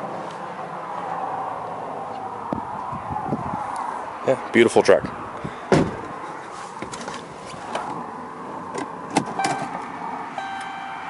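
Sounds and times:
dashboard electronic chime: 10.4 - 11.0.

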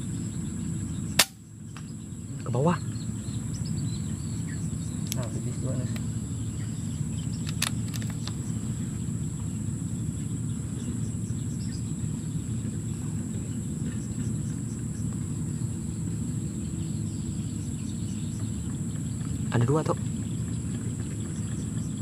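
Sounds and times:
faint clicks: 7.4 - 8.4.

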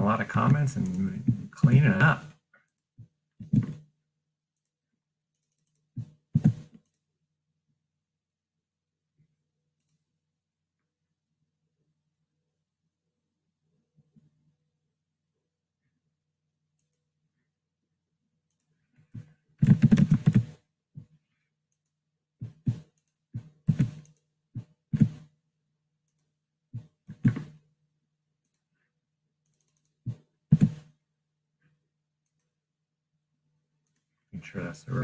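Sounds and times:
mouse clicks: 29.4 - 30.9.

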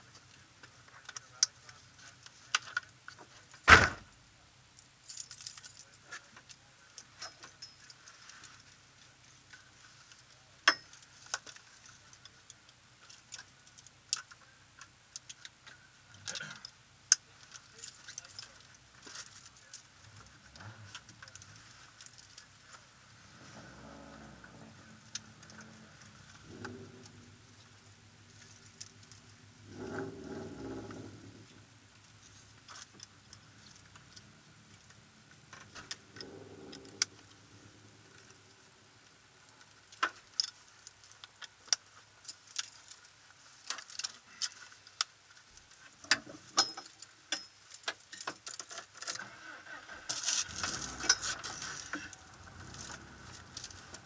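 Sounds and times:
small clicks and jingling rattles: 4.7 - 54.0
low engine sound: 23.0 - 39.4, 49.8 - 54.0.

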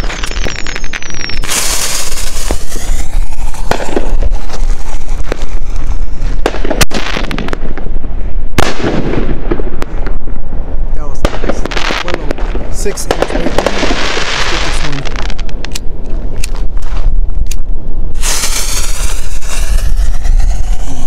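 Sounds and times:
firework fuse hissing: 0.0 - 7.7, 18.2 - 21.0
firework launch bang: 1.4 - 7.8, 8.6 - 10.0, 18.2 - 21.0.

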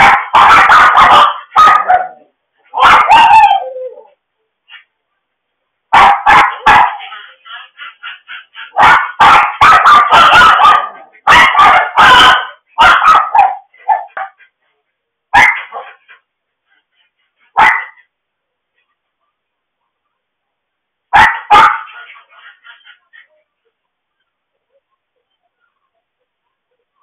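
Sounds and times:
dogs barking and yipping: 0.0 - 4.2, 5.9 - 14.6, 15.4 - 16.3, 17.0 - 18.1, 21.2 - 23.4.

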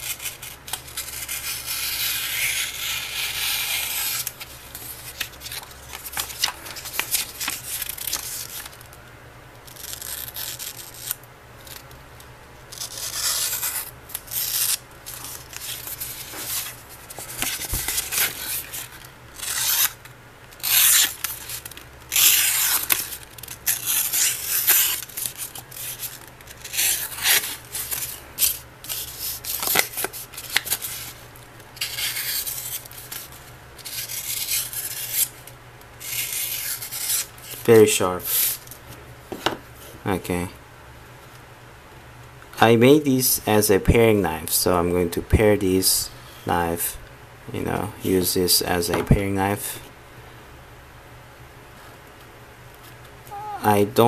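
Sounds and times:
paper rustling and being cut: 12.8 - 20.0.

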